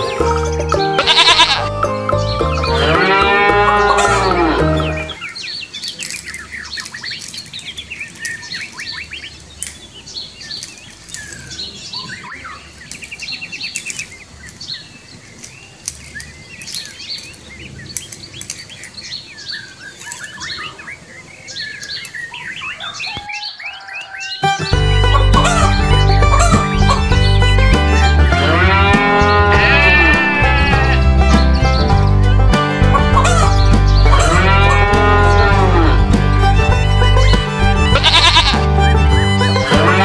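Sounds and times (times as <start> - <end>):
music: 0.0 - 5.2, 24.4 - 40.0
songbirds chirping: 0.0 - 40.0.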